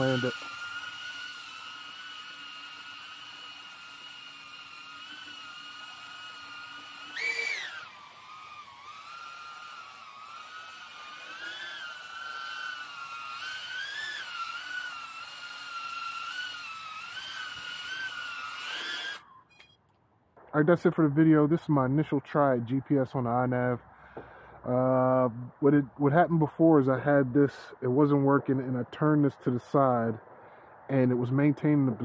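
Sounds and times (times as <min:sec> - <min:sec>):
quadcopter motors whining: 0:00.0 - 0:19.8.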